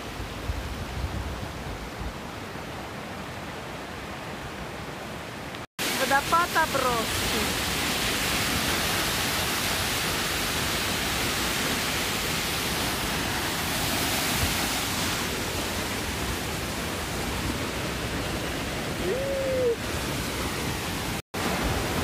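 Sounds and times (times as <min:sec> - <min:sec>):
waterfall rushing: 0:05.8 - 0:22.0.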